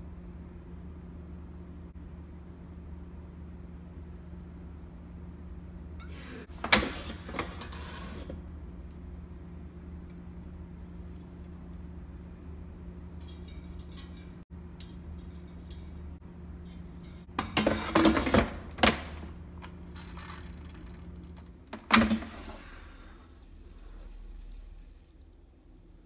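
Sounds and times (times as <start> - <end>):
air fryer basket clattering: 6.0 - 8.3, 12.6 - 19.3.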